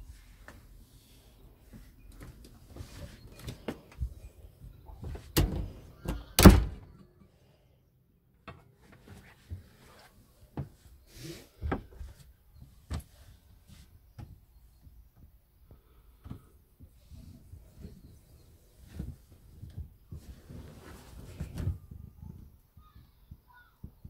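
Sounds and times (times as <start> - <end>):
wooden door knocks and thunks: 5.2 - 6.9.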